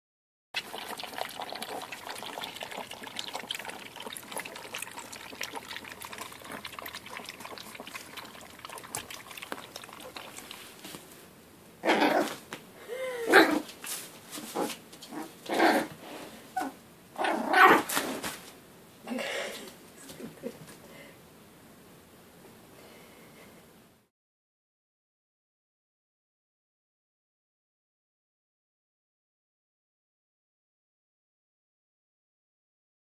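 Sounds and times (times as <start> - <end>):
puppies lapping food: 0.6 - 11.1
puppy yapping: 16.6 - 17.9.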